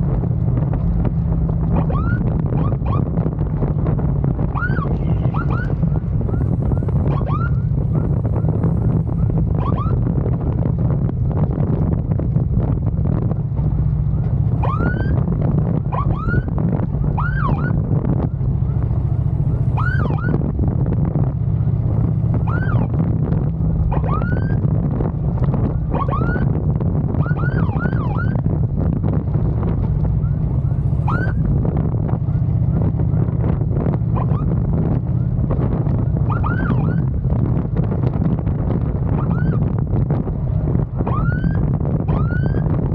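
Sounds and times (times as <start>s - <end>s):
motorcycle engine drone: 0.0s - 42.9s
wind noise: 0.0s - 42.9s
siren whoops: 1.8s - 3.2s, 4.5s - 10.6s, 14.5s - 17.8s, 19.5s - 20.5s, 22.4s - 23.0s, 23.9s - 24.7s, 25.9s - 28.5s, 31.0s - 31.5s, 34.1s - 37.2s, 39.1s - 39.8s, 41.0s - 42.8s.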